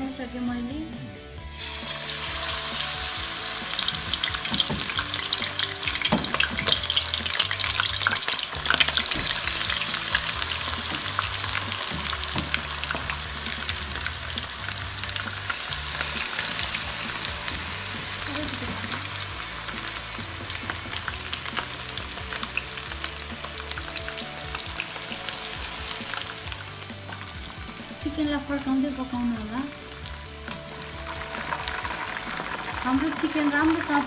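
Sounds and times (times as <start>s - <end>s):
chicken deep-frying in oil: 1.5s - 34.0s.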